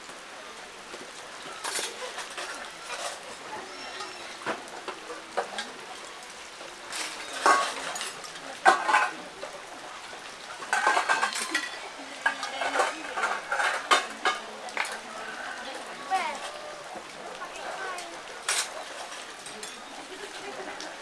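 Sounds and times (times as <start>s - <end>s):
metal utensils clinking on pots: 1.5s - 6.0s, 6.9s - 9.6s, 10.4s - 16.6s, 17.5s - 20.9s.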